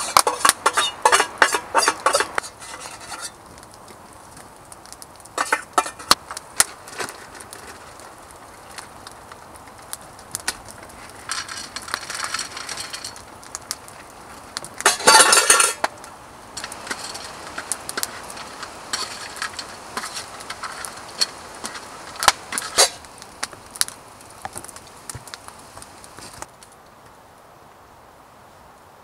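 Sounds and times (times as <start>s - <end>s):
metal spoon scraping metal lid: 0.0s - 3.4s.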